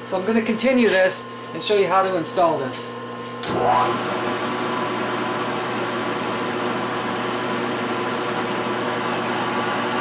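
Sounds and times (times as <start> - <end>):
milling machine drilling metal: 8.3 - 10.0.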